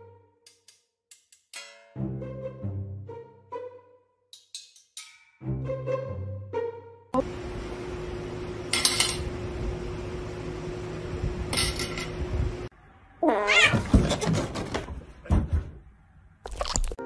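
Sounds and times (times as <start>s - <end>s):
steady low hum: 7.2s - 12.7s
rings clattering on a table: 11.5s - 12.1s
cat meowing: 13.2s - 13.9s.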